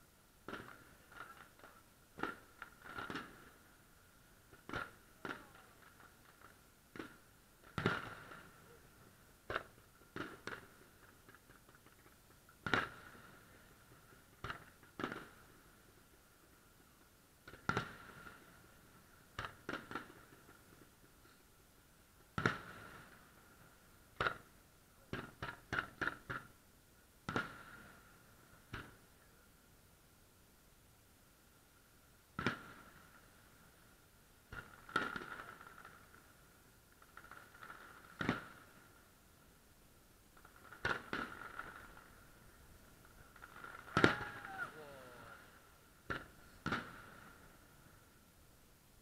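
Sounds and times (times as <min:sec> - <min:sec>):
firework pops: 0:00.4 - 0:03.6, 0:04.4 - 0:18.6, 0:19.3 - 0:21.4, 0:22.3 - 0:23.3, 0:24.1 - 0:26.6, 0:27.2 - 0:28.0, 0:28.7 - 0:29.1, 0:32.4 - 0:33.1, 0:34.5 - 0:36.3, 0:37.0 - 0:38.8, 0:40.4 - 0:42.1, 0:43.0 - 0:45.4, 0:46.0 - 0:47.6
firework bangs: 0:00.4 - 0:03.8, 0:04.4 - 0:21.2, 0:22.3 - 0:26.5, 0:27.2 - 0:29.1, 0:32.3 - 0:33.4, 0:34.5 - 0:39.0, 0:40.4 - 0:48.1.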